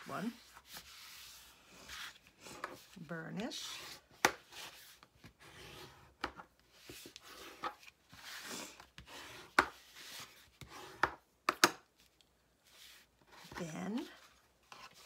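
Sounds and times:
bone folder scraping paper: 6.7 - 11.0, 12.7 - 15.0.

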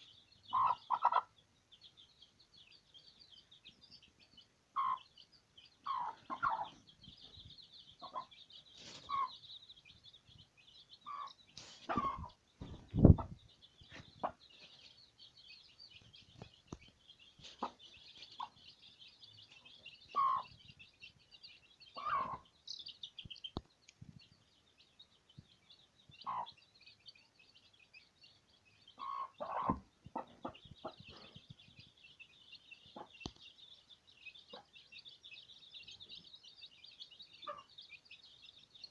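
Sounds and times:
chicks peeping: 0.0 - 38.9
hen clucking: 0.5 - 1.4, 4.8 - 5.2, 5.8 - 6.9, 8.0 - 9.5, 11.0 - 14.9, 17.4 - 18.7, 19.5 - 20.8, 21.9 - 22.7, 26.2 - 26.6, 28.9 - 31.6, 32.8 - 33.4, 37.4 - 37.7.

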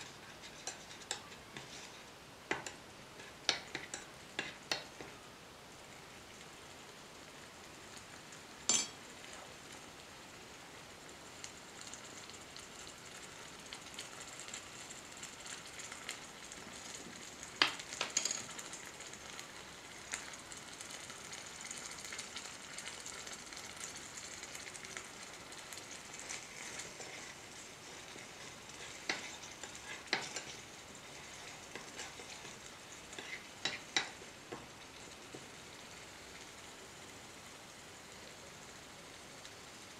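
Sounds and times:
curry sizzling in a pan: 0.0 - 39.9
metal spoon clinking on pan: 8.7 - 9.0, 18.0 - 18.5, 28.8 - 30.6.

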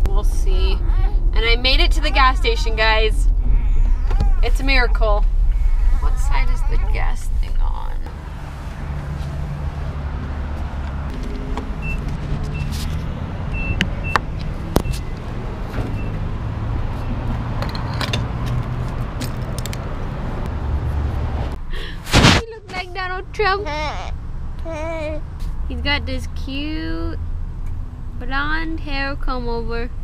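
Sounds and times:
steady low rumble: 0.0 - 24.8
fuel pump keypad beeps: 13.6 - 14.2.

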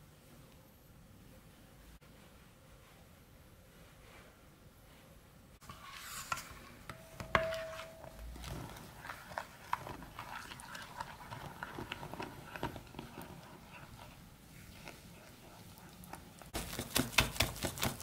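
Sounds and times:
spoon scraping ceramic bowl: 5.6 - 14.8.

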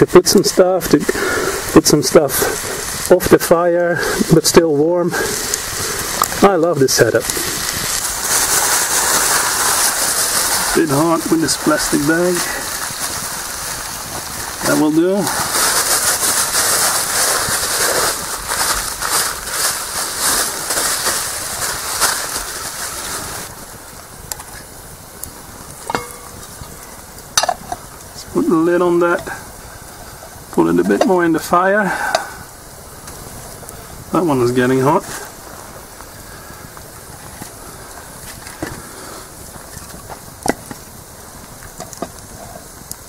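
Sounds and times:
campfire hissing: 0.0 - 43.0
frying pan sizzling: 0.0 - 43.0
plastic bag crinkling: 6.2 - 23.5.

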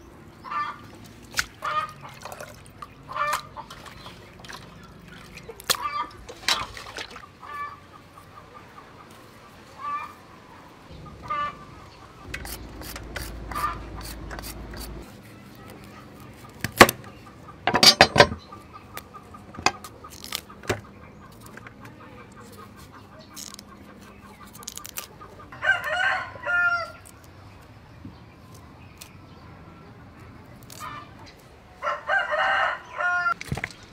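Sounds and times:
chickens clucking: 0.4 - 15.1, 15.9 - 27.0
sharp clicks and knocks: 17.7 - 18.4.

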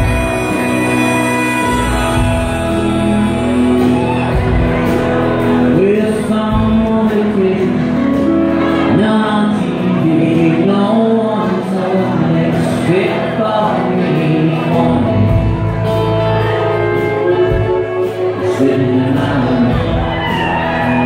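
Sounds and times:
live rock band playing: 0.0 - 21.0
man singing: 0.0 - 21.0.

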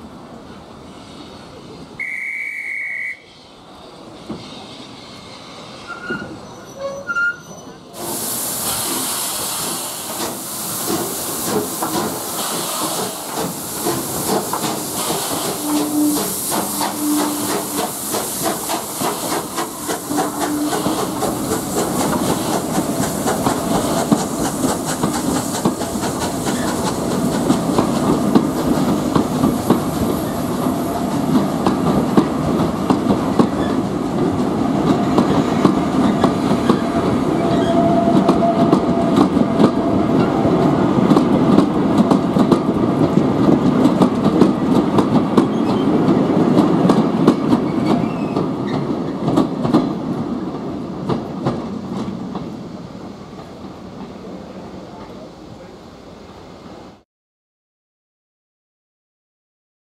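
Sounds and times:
train wheels clicking over rail joints: 8.0 - 54.2.

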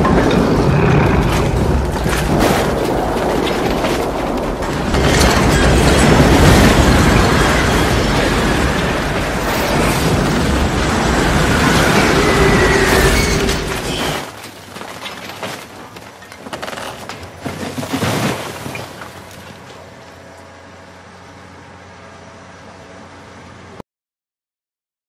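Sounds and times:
rushes of wind: 0.0 - 14.2
tornado roar with flying debris: 0.0 - 14.4.

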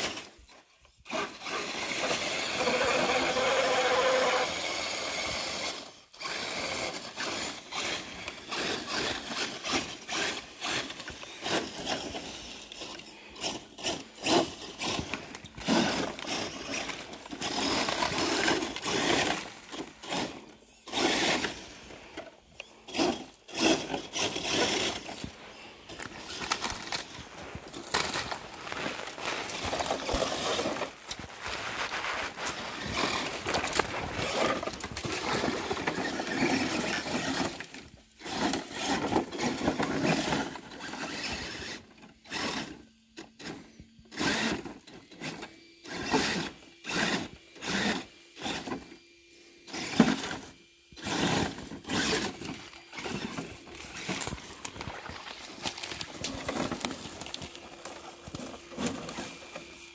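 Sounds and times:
faint electric motor whine: 0.0 - 59.9
footsteps on dry leaves: 22.8 - 36.8, 51.6 - 59.9
dry leaves crunching: 22.8 - 36.9, 51.4 - 59.9.

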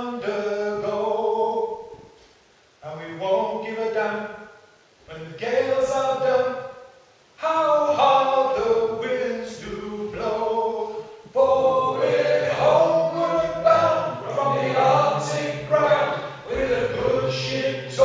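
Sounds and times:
men singing a cappella: 0.0 - 1.8, 5.1 - 6.6, 7.4 - 18.0.

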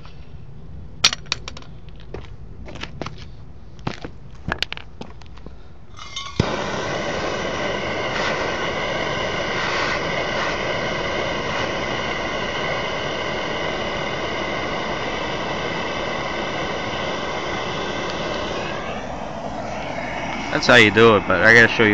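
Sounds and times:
gas torch lighting pop: 6.0 - 20.4
torch flame roaring hiss: 6.0 - 21.9.

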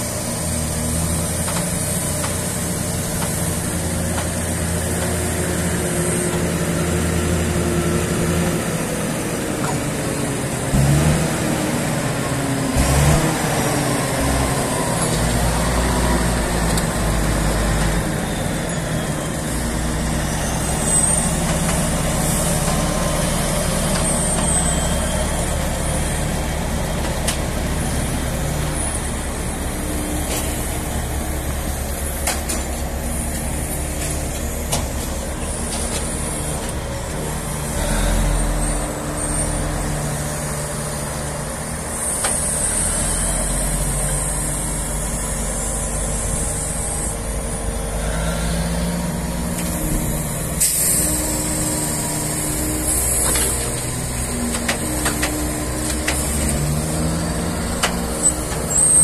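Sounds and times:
diesel engine running: 0.0 - 59.0
brief high squeaks: 58.1 - 59.0.

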